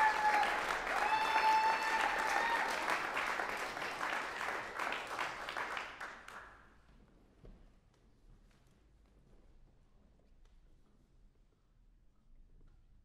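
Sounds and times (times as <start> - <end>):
audience applause: 0.0 - 6.5.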